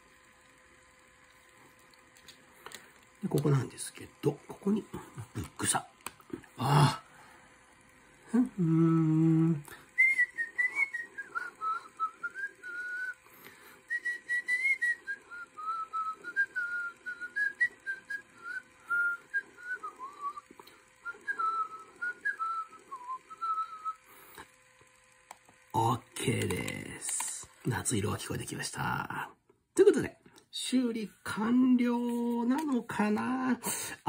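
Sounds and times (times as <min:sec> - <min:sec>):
low hummed voice: 0:03.2 - 0:13.2
person whistling a tune: 0:08.6 - 0:13.2, 0:13.9 - 0:24.0.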